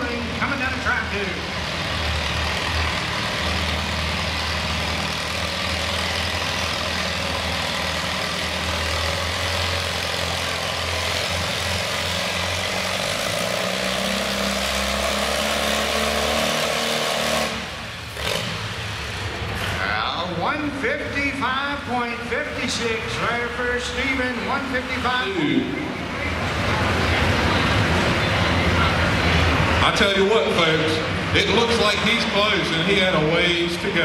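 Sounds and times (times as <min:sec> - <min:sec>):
tractor engine running: 0:00.0 - 0:34.0.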